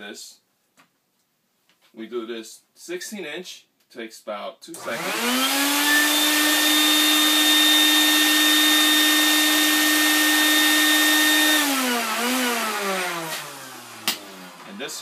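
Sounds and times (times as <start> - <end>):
vacuum motor whining: 4.8 - 14.8.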